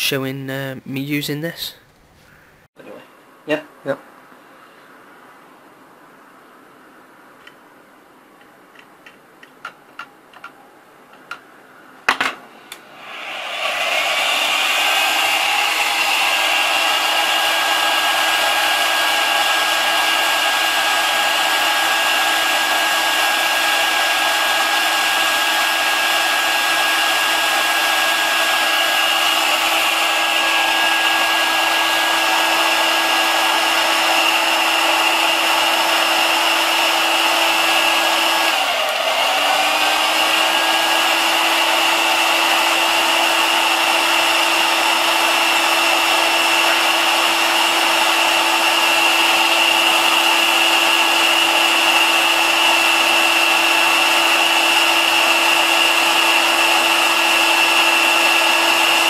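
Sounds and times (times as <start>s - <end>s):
heat gun fan humming: 12.7s - 59.0s.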